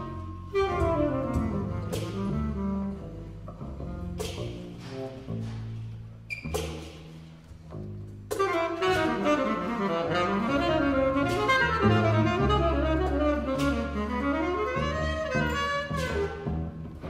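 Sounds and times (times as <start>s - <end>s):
tenor saxophone melody: 0.0s - 4.2s, 8.3s - 16.4s
bowed cello low notes: 0.0s - 6.9s, 7.6s - 17.0s.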